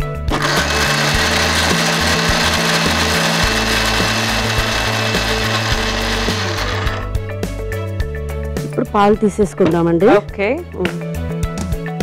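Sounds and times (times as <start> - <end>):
mixer grinder whirring: 0.0 - 7.3.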